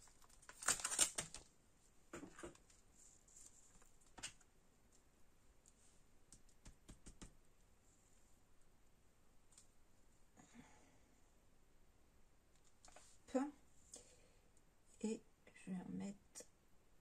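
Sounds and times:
paper being handled: 0:00.0 - 0:01.4.

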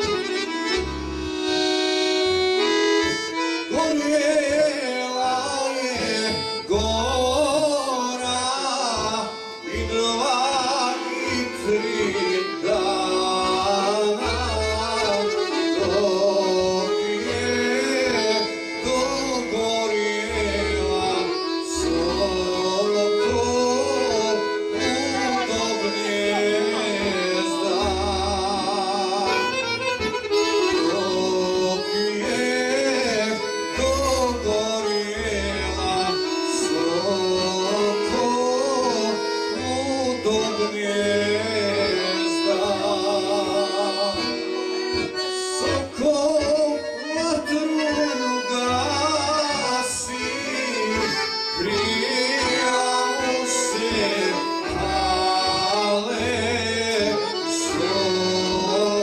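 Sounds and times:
accordions playing: 0:00.0 - 0:59.0
electronic keyboard bass notes: 0:00.0 - 0:59.0
man singing with vibrato: 0:00.0 - 0:59.0.

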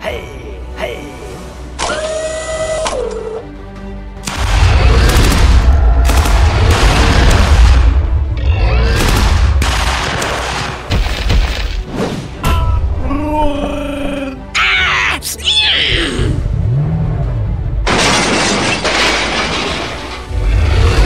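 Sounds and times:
background music: 0:00.0 - 0:21.0
gunfire crackle: 0:04.2 - 0:08.0, 0:09.0 - 0:11.7.

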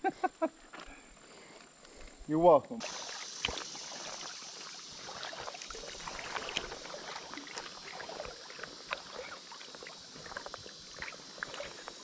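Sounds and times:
water lapping against boat hull: 0:02.8 - 0:12.0.

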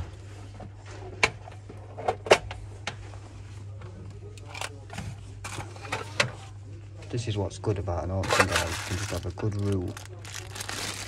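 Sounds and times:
clicks and knocks of objects: 0:08.2 - 0:11.0.

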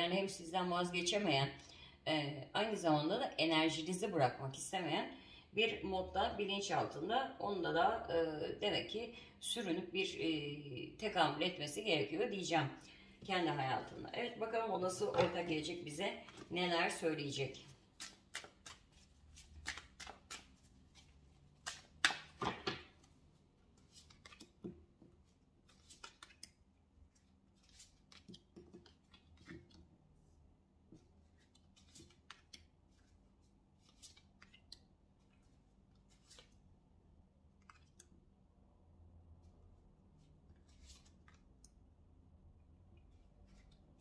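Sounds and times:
cards shuffling: 0:17.7 - 0:29.8, 0:31.2 - 0:36.6, 0:40.5 - 0:41.4.

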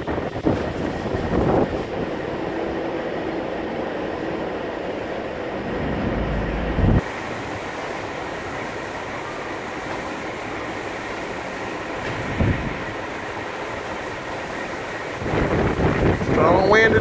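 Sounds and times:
strong wind on microphone: 0:00.0 - 0:03.6, 0:05.4 - 0:07.6, 0:12.1 - 0:12.9, 0:15.1 - 0:17.0
heavy low buffeting gust: 0:00.1 - 0:08.4, 0:12.2 - 0:13.0, 0:15.2 - 0:17.0.

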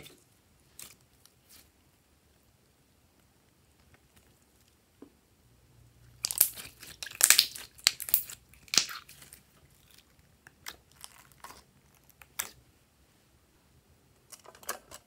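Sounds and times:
wet clicks and pops: 0:06.2 - 0:09.0.

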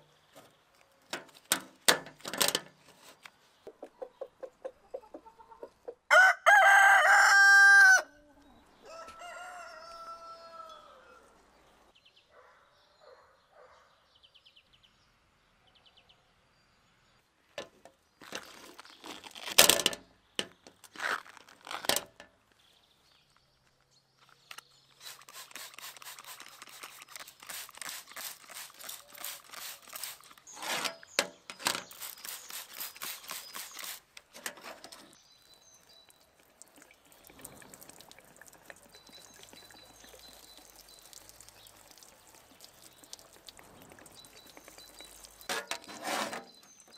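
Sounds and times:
spray bottle spritzing: 0:24.9 - 0:30.6, 0:31.4 - 0:34.4
water splashing on metal mesh: 0:31.2 - 0:46.5.

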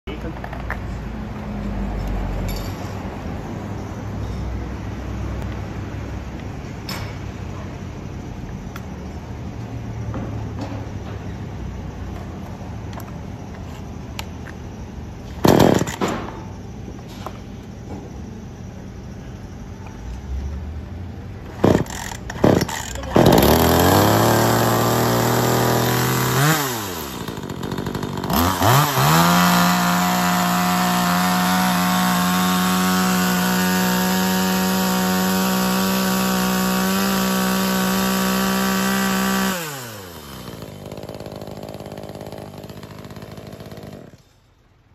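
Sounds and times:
chainsaw engine revving: 0:15.4 - 0:16.0, 0:21.6 - 0:44.3
chainsaw starter cord pulls: 0:15.4 - 0:16.0, 0:21.5 - 0:44.3.

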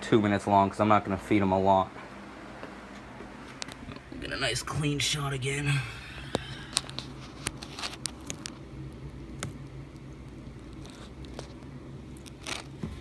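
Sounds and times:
faint low hum: 0:00.0 - 0:13.0
lizard crunching a worm: 0:06.3 - 0:13.0.

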